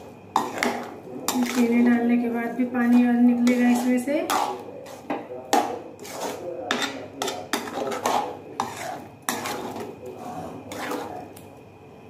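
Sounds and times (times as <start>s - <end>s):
metal spatula scraping a metal pan: 0.0s - 11.4s.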